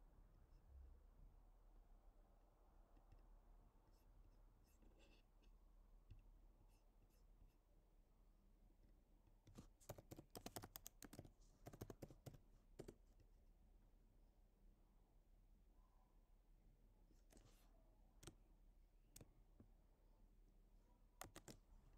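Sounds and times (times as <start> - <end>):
keyboard typing: 9.5 - 13.0, 21.2 - 21.7.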